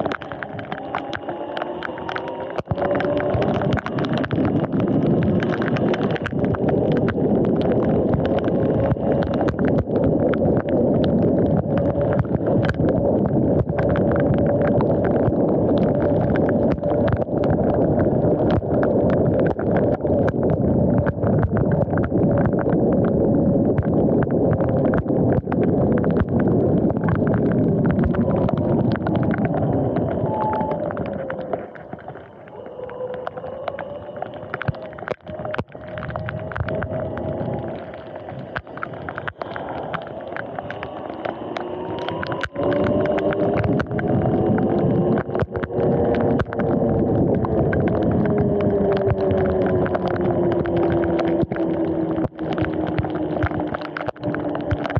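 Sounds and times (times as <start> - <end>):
small clicks: 0.0 - 22.8, 23.6 - 54.9
tyre and wind noise: 0.0 - 54.9.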